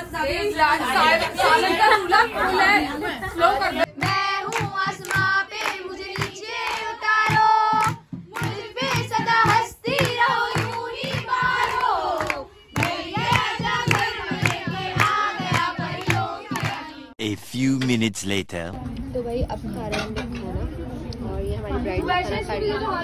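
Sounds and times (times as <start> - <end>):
women singing together: 0.0 - 17.2
hand-clapping: 4.0 - 16.9
hand drum beat: 7.2 - 11.7, 12.8 - 16.8.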